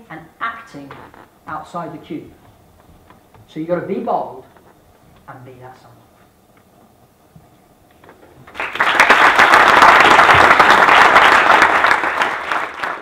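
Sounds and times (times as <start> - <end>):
audience applauding: 8.4 - 13.0.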